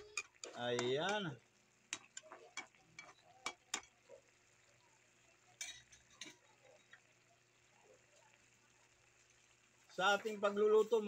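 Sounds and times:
spoon tapping a wok: 0.0 - 1.3, 1.9 - 4.0.

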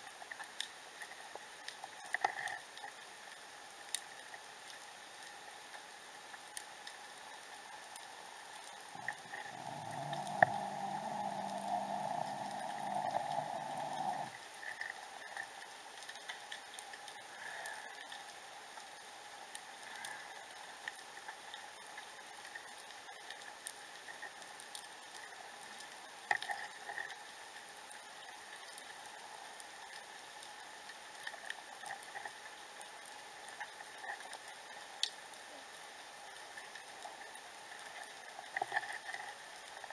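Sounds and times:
underwater clicks and crackles: 0.0 - 39.9
low hum: 8.9 - 14.4
underwater hiss: 8.9 - 14.4.

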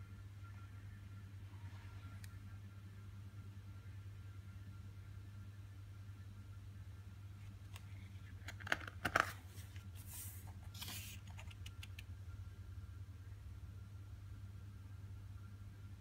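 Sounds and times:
steady low hum: 0.0 - 16.0
soft swish of paper: 9.5 - 11.5.

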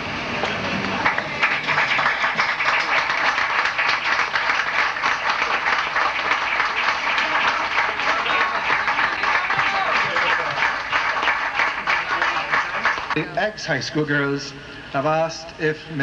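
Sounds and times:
crowd applauding: 0.0 - 13.2
voices: 5.2 - 16.0.

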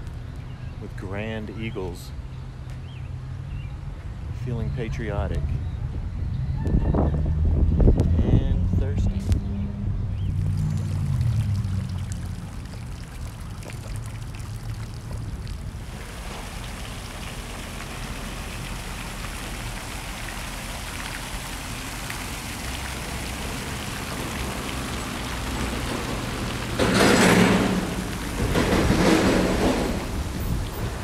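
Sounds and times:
fountain water running: 10.2 - 31.0.

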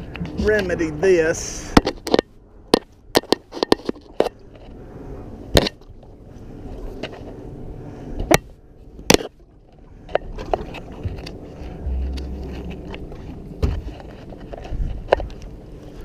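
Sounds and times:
fishing rods knocking and clicking: 1.8 - 4.4, 10.1 - 15.6.

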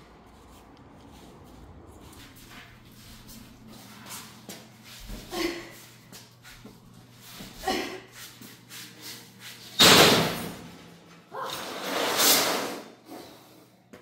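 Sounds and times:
metal sheet scraping: 11.4 - 13.0.

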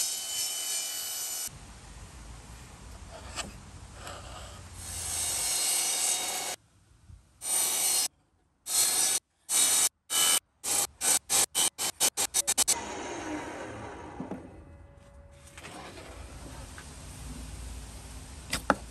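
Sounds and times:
saw cutting wood: 8.7 - 14.8
table saw humming: 12.5 - 16.1.

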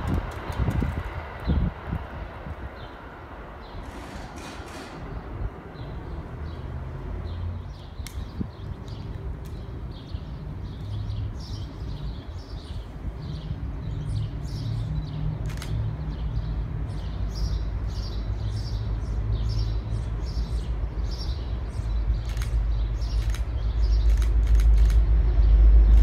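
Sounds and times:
small birds chirping: 5.0 - 26.0
low engine-like rumble: 20.1 - 26.0.

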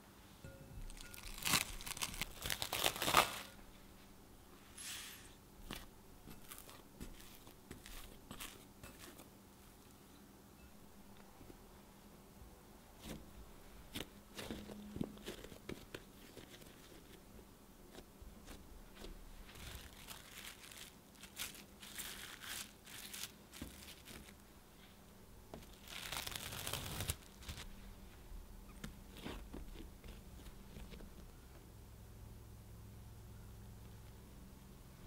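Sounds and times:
plastic cling wrap crinkling: 0.9 - 3.6, 5.6 - 9.3, 18.5 - 24.4, 25.6 - 27.8.

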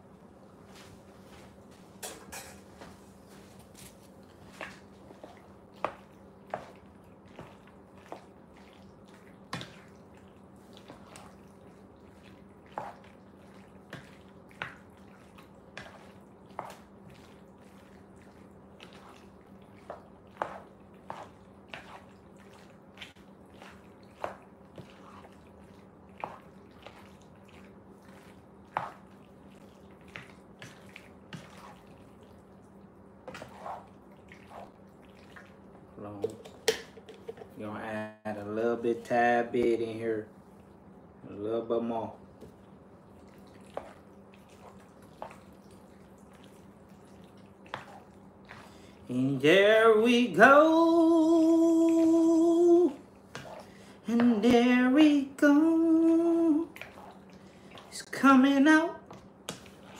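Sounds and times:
wet squishing of food: 2.8 - 37.6, 39.0 - 59.9.

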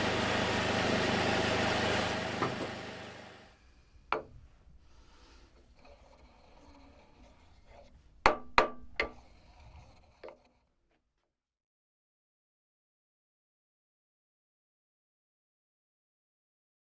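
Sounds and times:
faint rubbing: 4.8 - 8.2, 9.0 - 10.7
wooden pestle knocking in mortar: 8.3 - 9.2.

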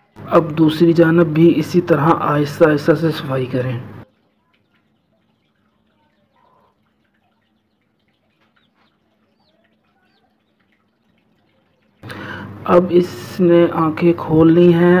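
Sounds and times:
chick peeping: 4.0 - 12.0.

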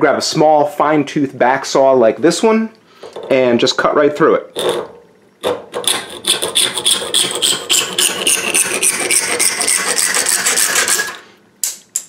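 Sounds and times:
saw cutting acrylic sheet: 4.6 - 11.2.

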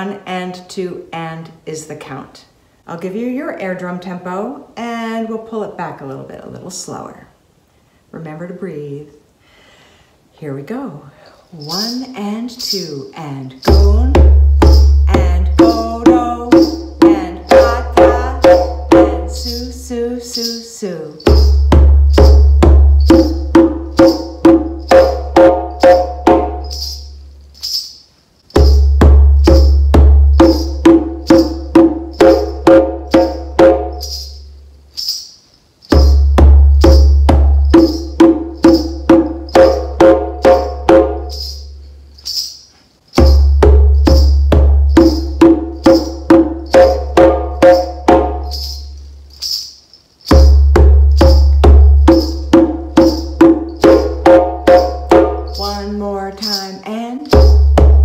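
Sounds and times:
ankle bells jingling: 11.4 - 58.0
djembe drumming: 13.6 - 19.8, 21.2 - 27.0, 28.5 - 34.2, 35.9 - 41.5, 43.2 - 48.7, 50.3 - 56.0, 57.3 - 58.0.

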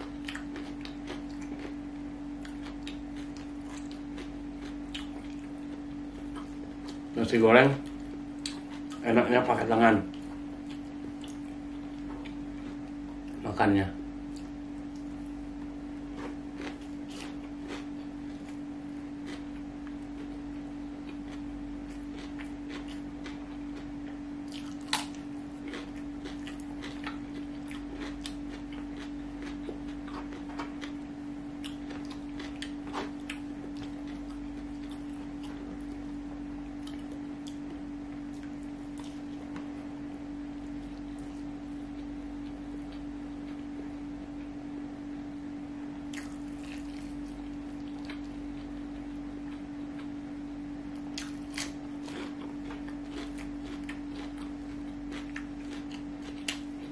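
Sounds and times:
person chewing with wet clicks: 0.0 - 1.8, 2.4 - 7.1, 7.8 - 9.1, 10.1 - 13.4, 14.3 - 18.6, 19.2 - 39.7, 46.1 - 50.2, 50.9 - 56.9
steady low hum: 0.0 - 56.9.

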